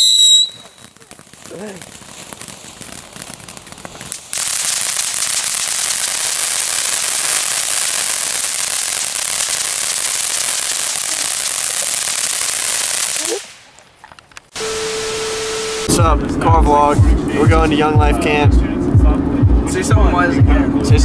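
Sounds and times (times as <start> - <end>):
firework crackling and hissing: 0.0 - 16.0.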